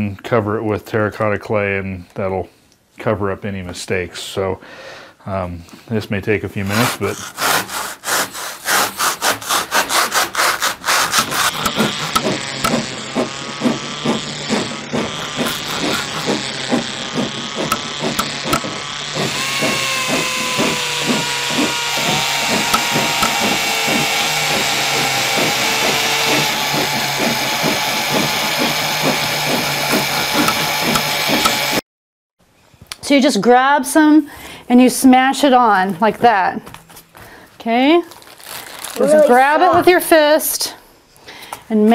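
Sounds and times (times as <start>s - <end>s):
rhythmic sawing: 6.6s - 31.8s
serrated knife sawing foam: 6.6s - 31.8s
power tool whine: 11.1s - 31.8s.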